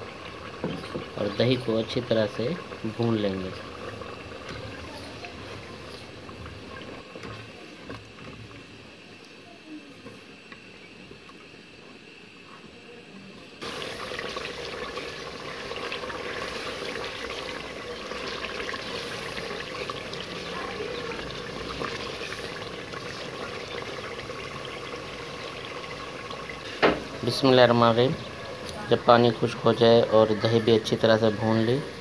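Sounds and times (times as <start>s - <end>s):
food sizzling and bubbling in a pot: 0.0s - 32.0s.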